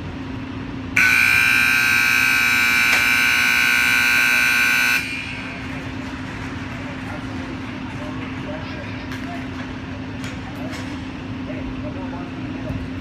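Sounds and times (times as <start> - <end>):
loud harsh game buzzer: 1.0 - 6.0.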